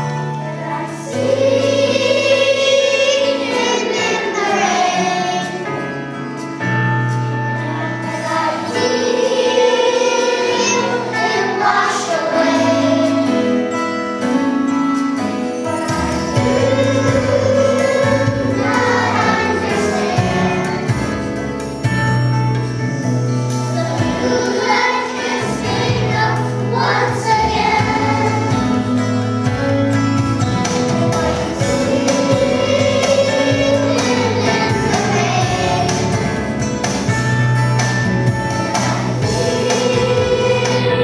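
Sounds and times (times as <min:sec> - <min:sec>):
children's choir singing: 0:00.0 - 0:06.0, 0:07.6 - 0:13.7, 0:15.6 - 0:21.3, 0:23.6 - 0:29.4, 0:30.6 - 0:37.1, 0:38.6 - 0:41.0.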